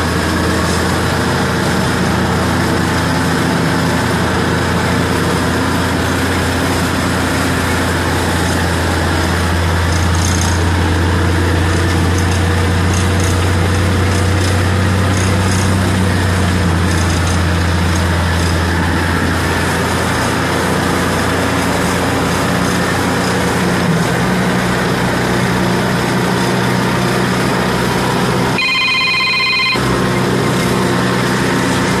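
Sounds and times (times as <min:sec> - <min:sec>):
tractor running under load: 0:00.0 - 0:32.0
electronic ringing tone: 0:28.6 - 0:29.9.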